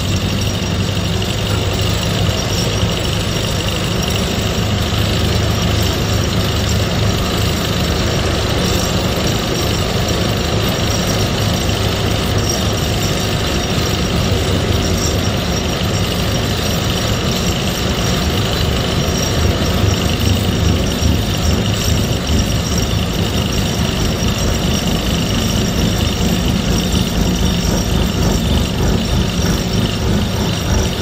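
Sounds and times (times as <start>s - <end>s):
vibratory pile driver clattering: 0.0s - 31.0s.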